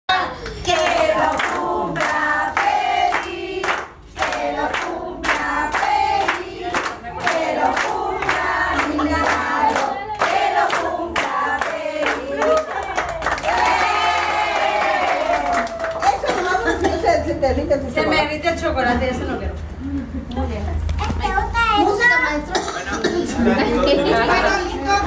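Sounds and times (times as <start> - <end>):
group singing: 0.1 - 15.3.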